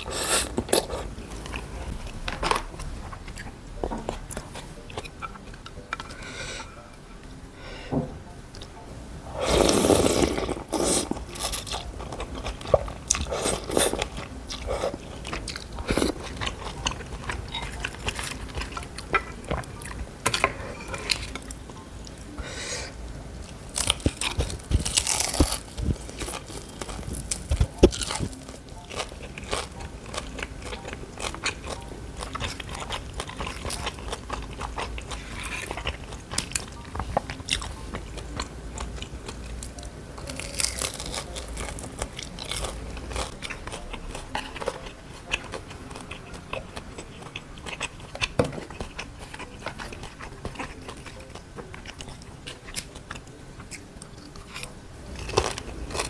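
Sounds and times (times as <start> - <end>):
chewing: 9.4 - 22.6, 23.4 - 56.0
crunchy bites into fried food: 23.8 - 25.7.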